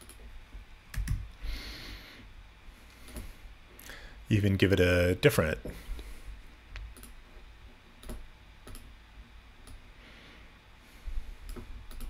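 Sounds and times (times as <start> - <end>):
computer mouse clicks: 0.0 - 0.2, 0.9 - 1.2, 6.8 - 7.2, 8.0 - 8.9, 9.6 - 9.8, 11.4 - 12.0.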